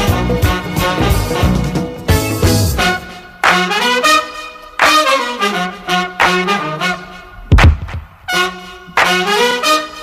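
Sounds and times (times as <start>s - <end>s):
swing band brass chords: 0.0s - 10.0s
loud brass hit: 7.5s - 8.4s.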